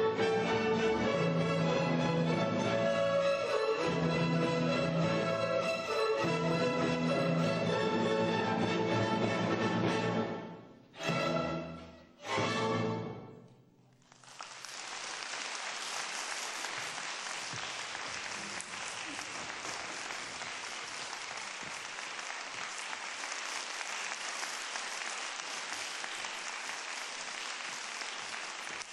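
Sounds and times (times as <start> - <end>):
audience applause: 14.0 - 28.9.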